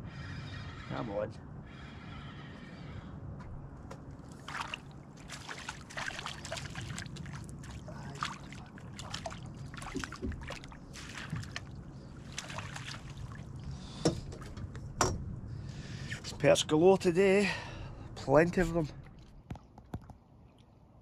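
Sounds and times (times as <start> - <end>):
steady low rumble: 1.6 - 19.5
water splashing against boat: 4.2 - 15.2.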